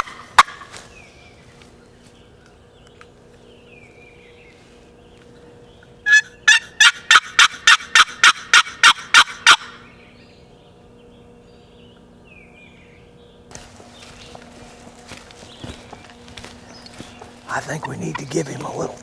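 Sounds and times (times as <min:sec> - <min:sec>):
turkey call harsh notes: 0:06.0 - 0:10.1, 0:17.2 - 0:19.0.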